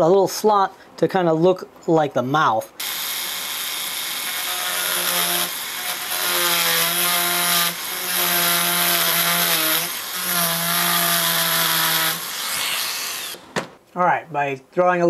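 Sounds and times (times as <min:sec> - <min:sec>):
rotary tool cutting wood: 0:02.8 - 0:13.5.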